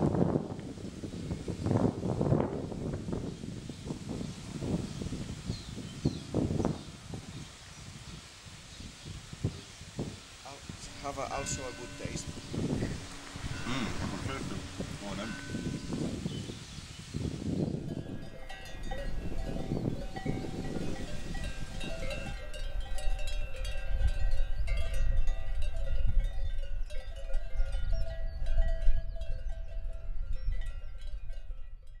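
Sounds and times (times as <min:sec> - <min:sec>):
livestock bells clanking: 0:10.8 - 0:16.3, 0:17.8 - 0:32.0
low rumble: 0:10.8 - 0:16.4.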